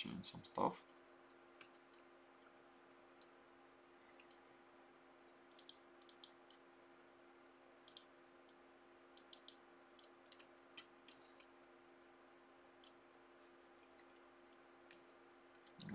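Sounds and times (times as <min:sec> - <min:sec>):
faint steady hum: 0:00.0 - 0:15.9
computer mouse clicking: 0:00.9 - 0:03.4, 0:04.1 - 0:04.5, 0:05.5 - 0:06.6, 0:07.8 - 0:11.6, 0:12.8 - 0:15.9.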